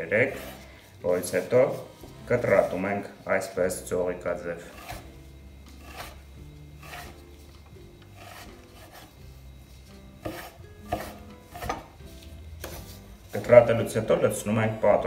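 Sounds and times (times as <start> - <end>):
knife slicing a tomato: 6.8 - 7.2, 10.2 - 12.0.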